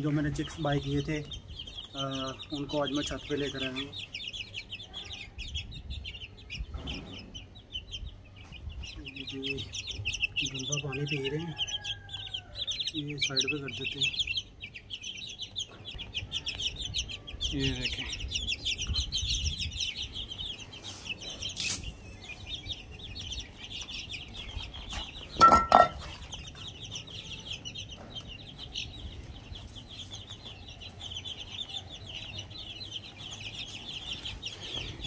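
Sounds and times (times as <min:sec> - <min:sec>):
chicks peeping: 0:00.0 - 0:35.0
loud metal clank: 0:25.4 - 0:26.1.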